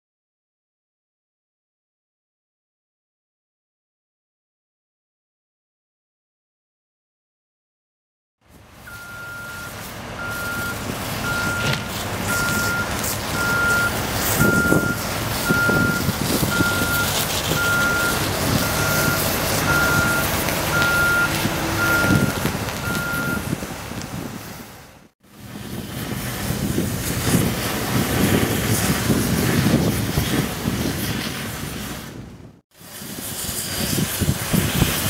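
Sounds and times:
low engine drone: 8.5s - 31.9s
backup alarm beeping: 8.9s - 23.6s.

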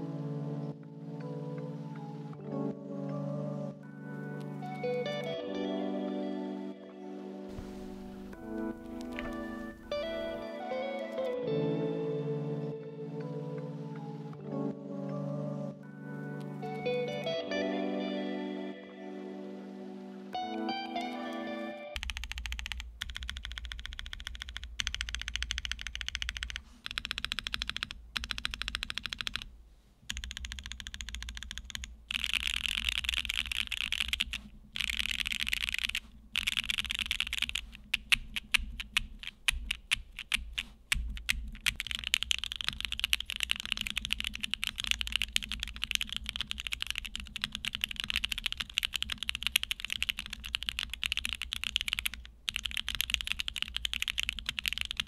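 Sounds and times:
mechanical keyboard typing: 22.0s - 29.5s, 30.1s - 55.0s.

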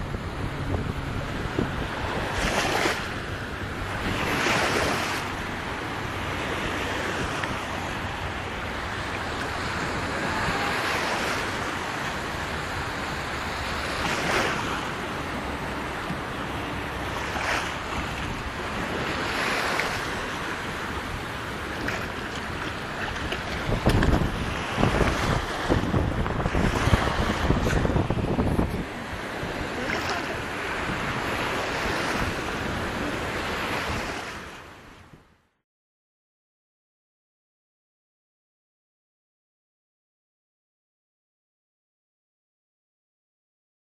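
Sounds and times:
water splashing and sloshing: 0.0s - 35.1s
wind buffeting microphone: 0.0s - 35.3s.

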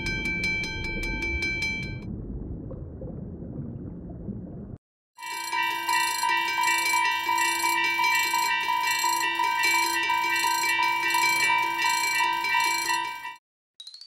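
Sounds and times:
railroad crossing bell ringing: 0.0s - 2.0s, 5.2s - 13.4s.

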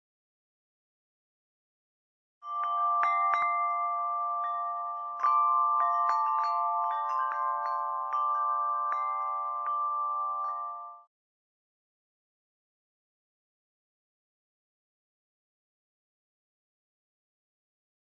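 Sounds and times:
held chord of steady tones: 2.4s - 11.1s
wind chimes: 2.4s - 11.1s.

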